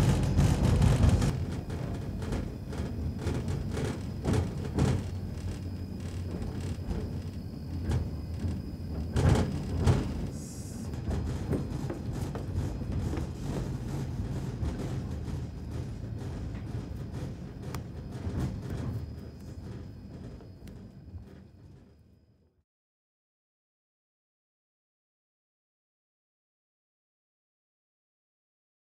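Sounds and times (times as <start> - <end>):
knocks and rattles: 0.0 - 21.9
tram running hum: 0.0 - 22.5.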